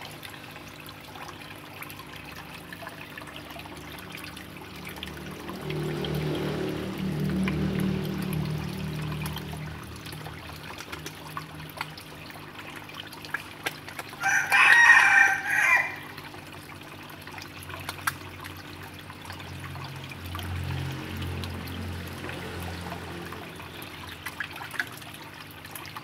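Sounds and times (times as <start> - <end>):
low steady hum: 0.0 - 14.2
fish splashing and slurping: 0.0 - 26.0
rooster crowing: 14.2 - 16.1.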